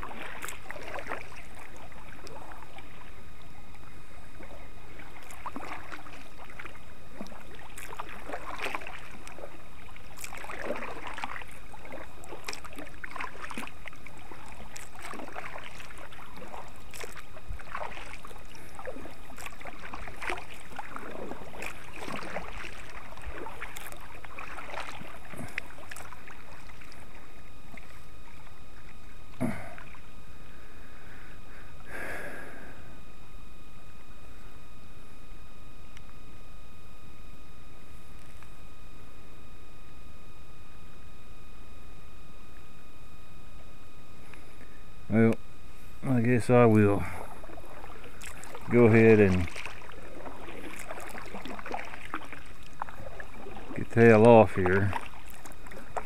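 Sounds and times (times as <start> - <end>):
paddle splashing through water: 0.0 - 32.3, 46.6 - 56.0.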